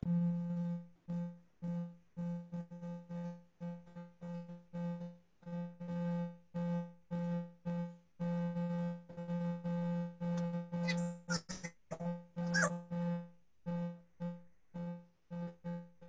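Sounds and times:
quick squeaky sweeps: 10.9 - 12.7.

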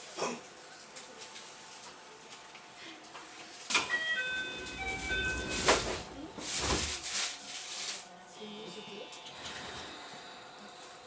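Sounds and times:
electronic door chime: 3.8 - 6.2.

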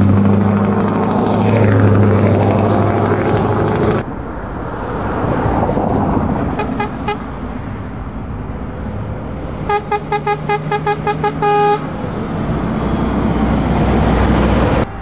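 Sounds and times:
truck engines running: 0.0 - 15.0
truck horn toots: 6.6 - 7.3, 9.7 - 12.0.

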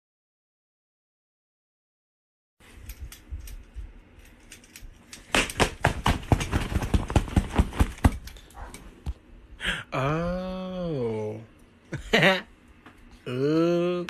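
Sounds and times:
sharp clicks or slaps: 5.2 - 8.3.

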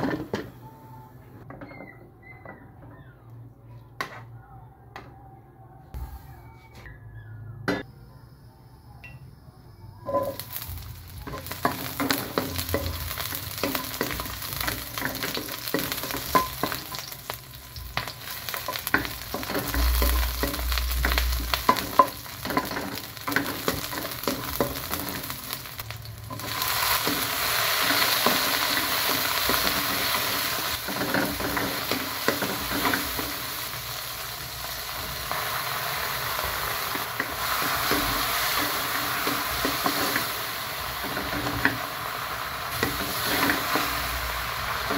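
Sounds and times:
vegetables sizzling in hot oil: 10.1 - 44.9.

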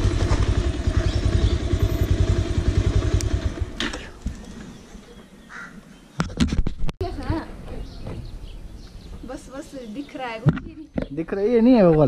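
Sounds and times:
motorcycle engine idling: 0.0 - 4.8.

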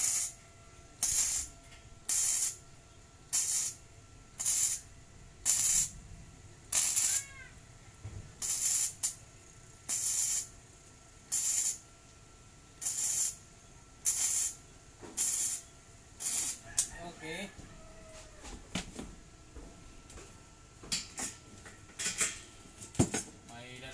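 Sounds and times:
welder crackling hiss: 0.0 - 0.4, 1.0 - 1.5, 2.1 - 2.6, 3.3 - 3.8, 4.4 - 6.0, 6.7 - 7.6, 8.4 - 9.2, 9.8 - 10.6, 11.2 - 11.8, 12.8 - 16.9.

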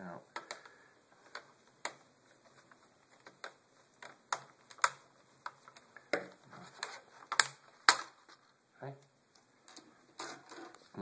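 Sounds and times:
plastic cover clicks and snaps: 0.3 - 2.1, 2.7 - 8.4.

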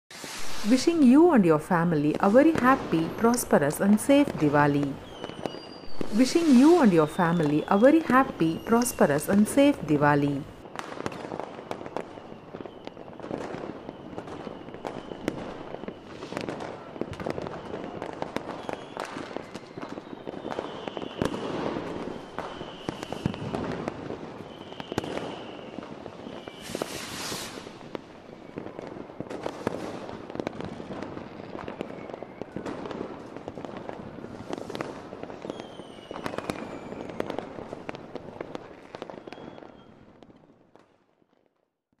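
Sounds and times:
rushing hiss: 0.1 - 0.7, 26.6 - 27.6
firework whistles: 0.1 - 1.0, 5.0 - 9.7, 10.6 - 30.1, 31.2 - 32.9, 34.1 - 37.9, 39.0 - 40.0
fireworks bangs and crackles: 0.1 - 41.6.

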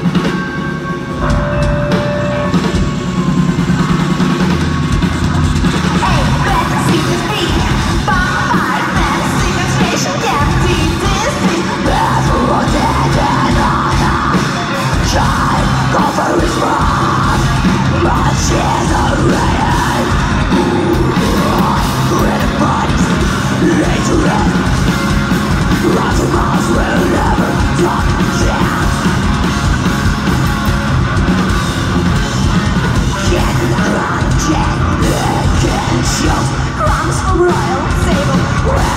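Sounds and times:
bass guitar: 0.0 - 38.9
distorted electric guitars: 0.0 - 38.9
drum kit: 0.0 - 38.9
woman singing: 6.0 - 20.5, 33.2 - 38.9.

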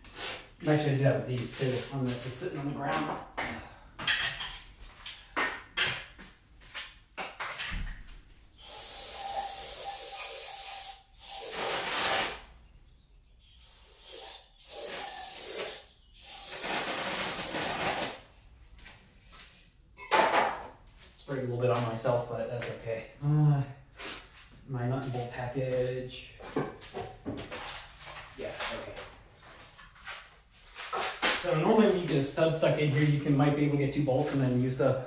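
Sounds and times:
aerosol can spraying: 8.6 - 12.4, 13.7 - 18.2.

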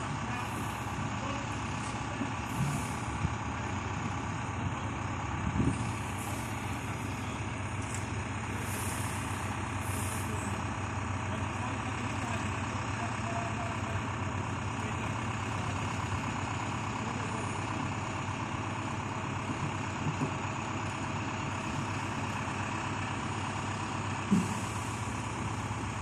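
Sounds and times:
diesel engine running: 0.0 - 26.0.

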